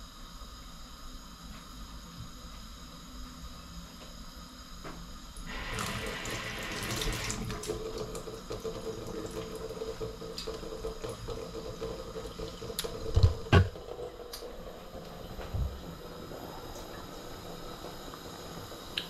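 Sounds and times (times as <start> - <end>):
tap water running: 5.4 - 19.0.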